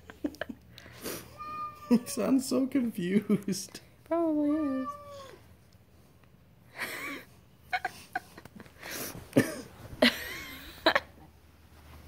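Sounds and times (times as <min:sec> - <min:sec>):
cat mewing and chirping: 0:01.3 - 0:02.2, 0:04.5 - 0:05.4.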